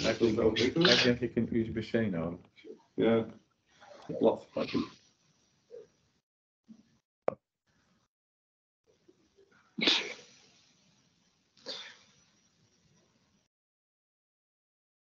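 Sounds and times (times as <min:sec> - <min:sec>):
person sneezing: 0:00.6 - 0:01.2, 0:09.8 - 0:10.3.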